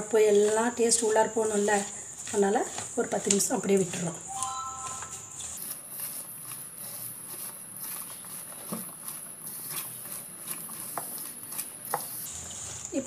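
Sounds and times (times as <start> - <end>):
high-pitched whine: 4.3 - 5.5.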